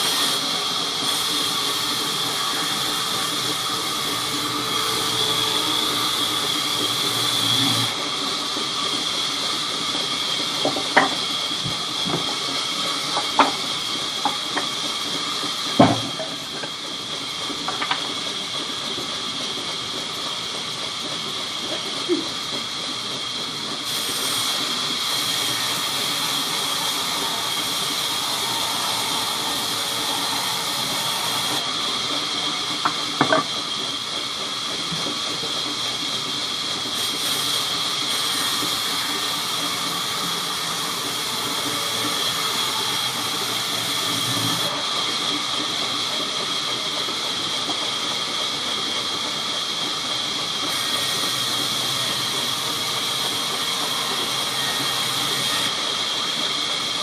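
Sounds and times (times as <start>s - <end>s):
band saw cutting wood: 0.0s - 18.7s, 23.8s - 49.8s, 50.4s - 57.0s
sharp knocks: 15.8s - 16.4s.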